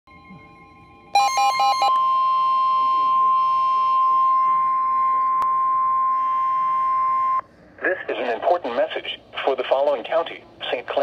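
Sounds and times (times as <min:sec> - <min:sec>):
weather radio alarm tone: 0:01.2 - 0:07.4.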